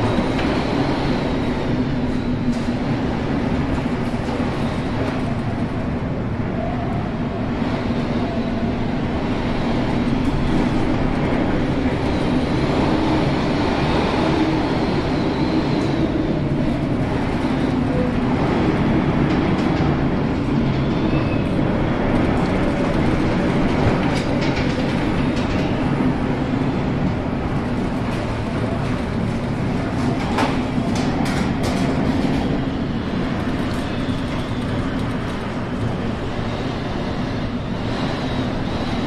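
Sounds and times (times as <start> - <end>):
storm wind and heavy seas: 0.0 - 39.0
faint wind whistle: 20.7 - 21.8.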